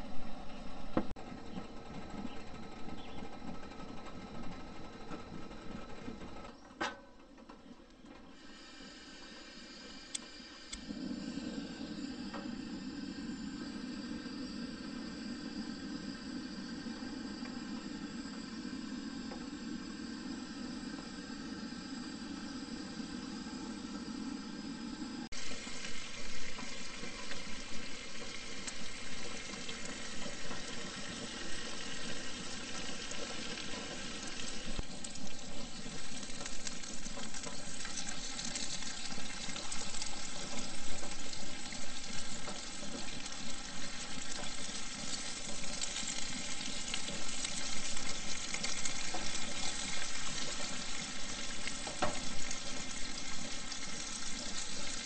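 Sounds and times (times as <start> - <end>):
bacon sizzling in a frying pan: 25.4 - 55.0.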